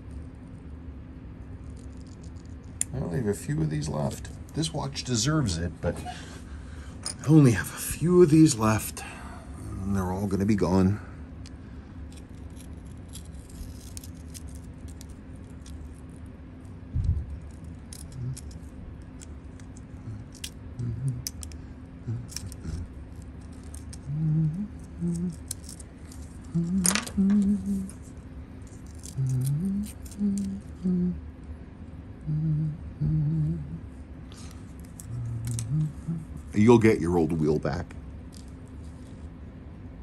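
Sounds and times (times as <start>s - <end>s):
man humming low notes: 18.0s - 18.6s, 19.9s - 23.0s, 23.9s - 25.6s, 26.4s - 28.0s, 29.0s - 31.3s, 32.1s - 36.6s.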